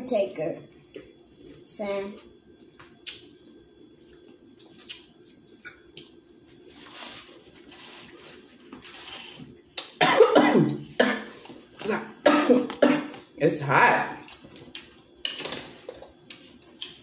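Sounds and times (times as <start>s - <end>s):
wet chewing: 3.0s - 10.0s
person coughing: 10.0s - 13.2s.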